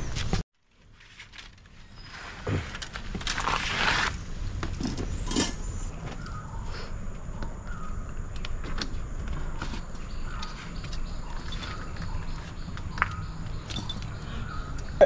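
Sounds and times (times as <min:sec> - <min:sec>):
canvas rustling: 0:00.0 - 0:05.8.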